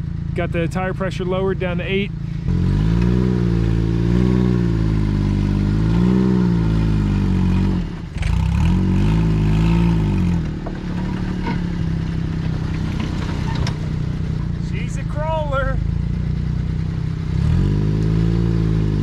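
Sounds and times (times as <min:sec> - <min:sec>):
small truck engine under load: 0:02.1 - 0:15.2.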